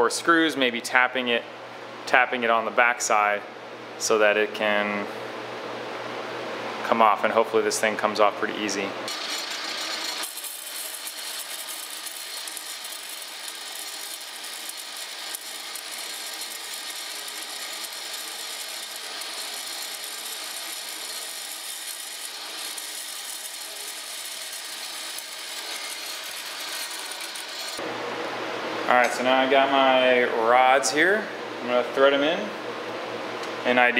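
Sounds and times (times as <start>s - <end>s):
bandsaw cutting steel rod: 9.1s - 27.8s.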